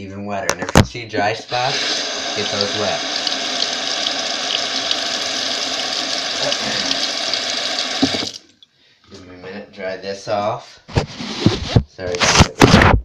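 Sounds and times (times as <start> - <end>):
sink tap running: 1.5 - 8.5
tap shutting off knock: 5.9 - 8.4.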